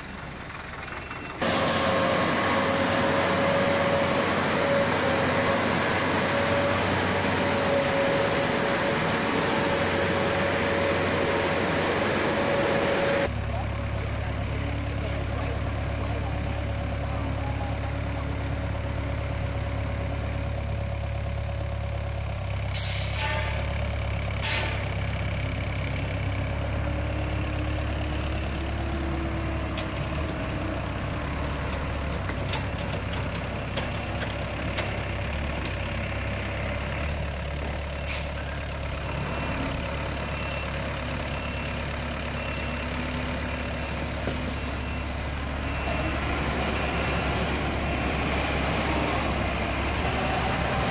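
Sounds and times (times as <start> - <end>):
diesel engine running at low revs: 0.0 - 50.9
brief sharp hisses: 22.8 - 23.6.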